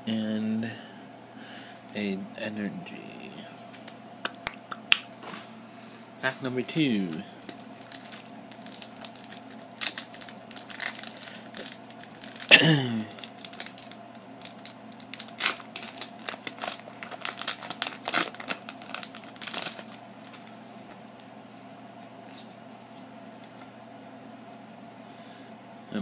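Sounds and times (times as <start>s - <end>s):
foil wrapper crinkling and tearing: 7.0s - 21.3s.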